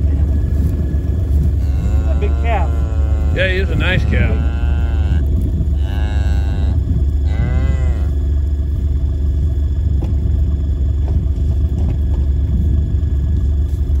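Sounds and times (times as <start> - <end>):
steady low rumble: 0.0 - 14.0
cow mooing: 1.4 - 8.2.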